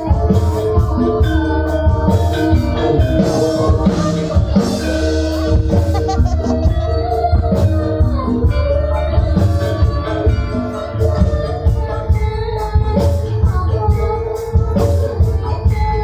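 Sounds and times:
continuous drumming: 0.0 - 16.0.

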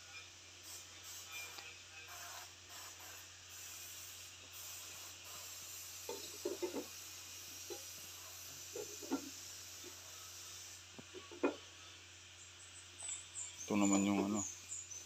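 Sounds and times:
faint outdoor background hiss: 0.0 - 15.0.

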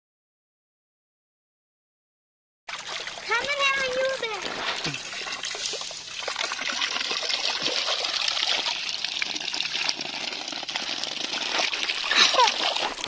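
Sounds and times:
water pouring into water: 2.7 - 13.0.

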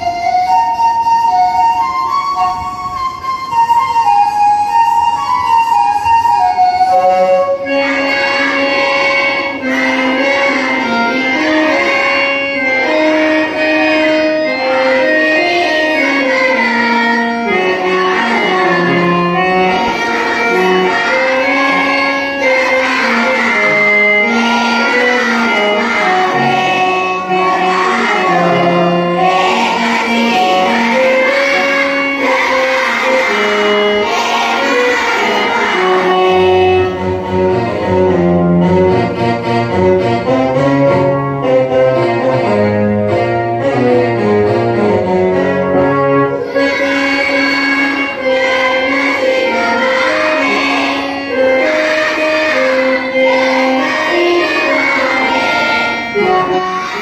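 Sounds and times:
instrumental accompaniment: 0.0 - 57.0
person singing prayer song: 12.8 - 36.5, 46.5 - 57.0.

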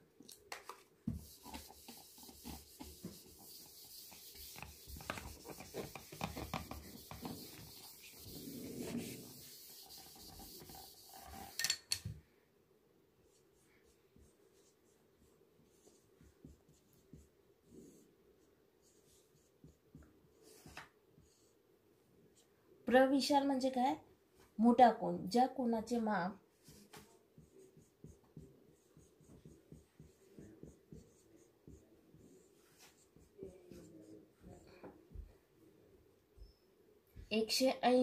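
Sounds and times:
duster rubbing on whiteboard: 1.1 - 11.6
faint marker strokes on board: 1.1 - 11.6, 13.3 - 21.6, 26.5 - 35.3.

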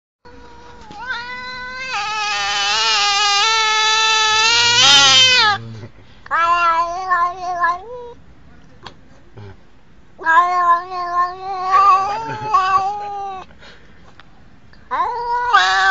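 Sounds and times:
cat meowing: 0.3 - 5.7, 6.3 - 8.2, 10.2 - 13.5, 14.9 - 15.9.

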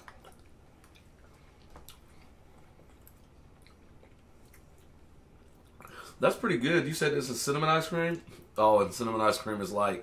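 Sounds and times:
soft chewing: 0.0 - 6.2.

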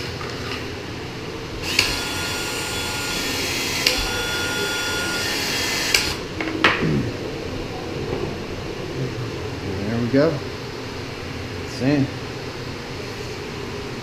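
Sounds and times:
power tool motor whine: 1.6 - 6.2.

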